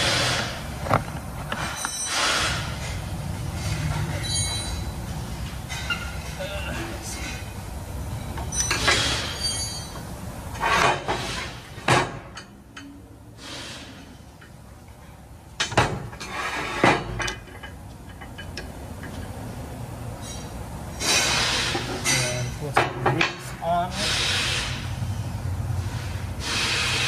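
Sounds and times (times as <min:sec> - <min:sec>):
metal tools clinking: 0:04.0 - 0:05.0, 0:08.2 - 0:10.0.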